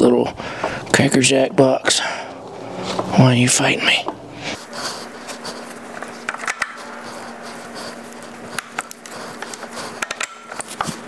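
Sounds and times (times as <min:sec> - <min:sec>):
faint steady hum: 0:00.0 - 0:11.0
metal clicks and scrapes: 0:04.6 - 0:11.0.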